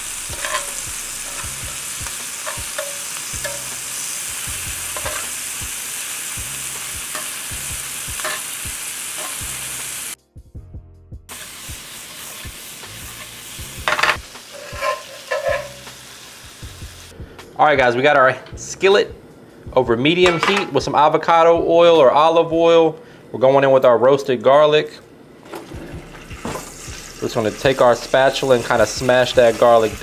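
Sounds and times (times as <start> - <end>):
shrimp sizzling in skillet: 0.0 - 10.2, 11.3 - 17.1, 26.0 - 30.0
metal tongs clicking: 0.3 - 1.6, 2.4 - 3.8, 5.0 - 5.4, 8.2 - 8.5.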